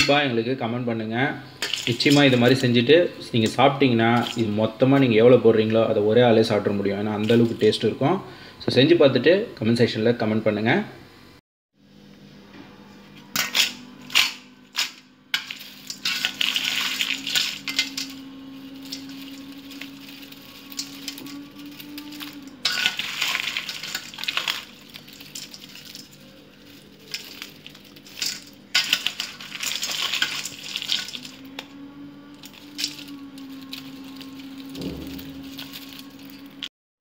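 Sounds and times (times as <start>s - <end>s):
fried food clattering in colander: 1.6s - 2.6s, 15.4s - 31.4s, 33.7s - 36.4s.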